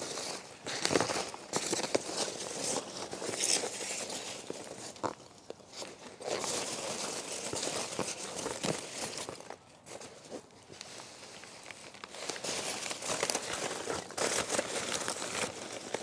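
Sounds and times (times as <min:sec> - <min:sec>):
packing peanuts rustling and crunching: 0:00.0 - 0:16.0.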